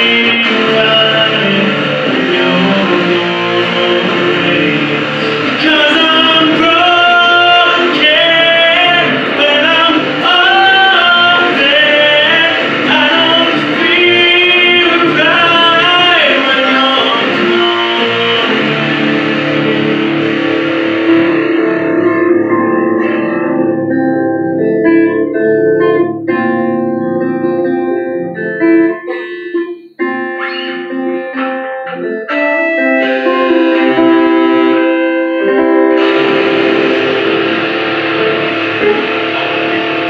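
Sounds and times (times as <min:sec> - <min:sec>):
man singing: 0:00.0 - 0:22.0
acoustic guitar: 0:00.0 - 0:40.0
electric guitar: 0:00.0 - 0:40.0.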